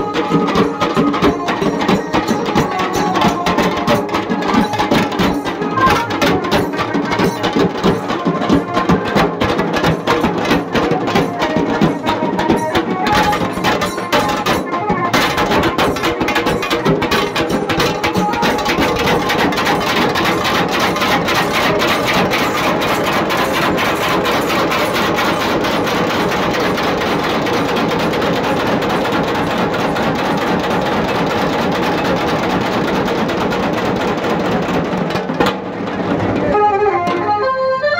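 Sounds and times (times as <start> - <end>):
dhol drums beaten fast: 0.0 - 37.4.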